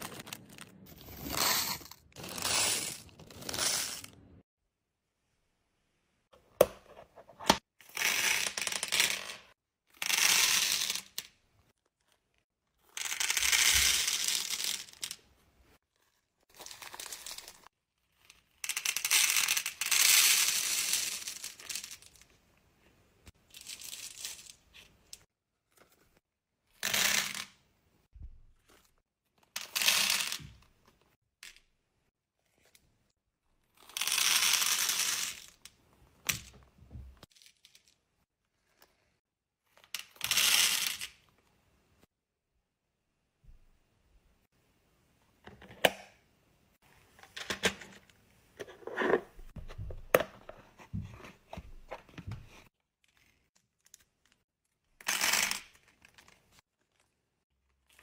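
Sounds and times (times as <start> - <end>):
plastic bags crinkling: 0.0 - 4.2.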